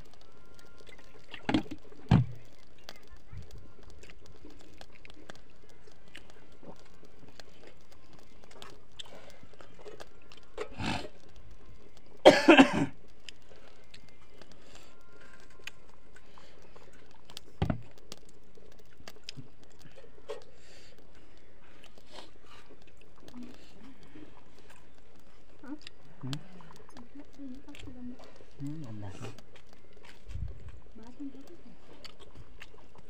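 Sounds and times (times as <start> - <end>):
man chewing: 3.8 - 27.0, 27.7 - 30.9, 31.8 - 33.0
man coughing: 12.2 - 13.0.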